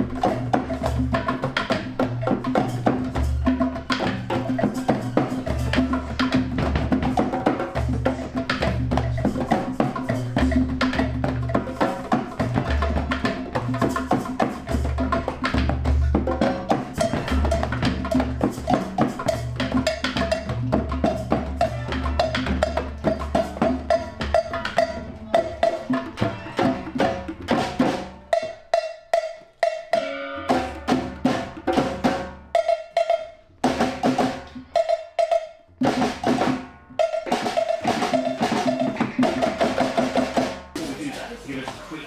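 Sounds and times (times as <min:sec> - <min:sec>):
hand drum played with fingers: 0:00.0 - 0:40.8
bodhrans beaten with tippers: 0:37.2 - 0:42.0.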